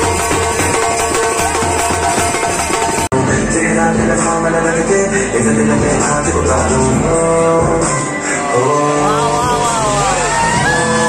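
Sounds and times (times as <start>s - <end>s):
steady drum beat: 0.0s - 4.2s.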